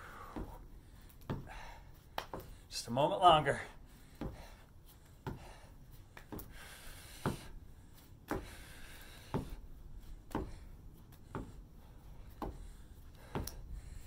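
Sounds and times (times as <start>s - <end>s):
soft knocks of foot on wooden deck: 8.3s - 8.6s, 9.2s - 9.6s, 10.3s - 10.6s.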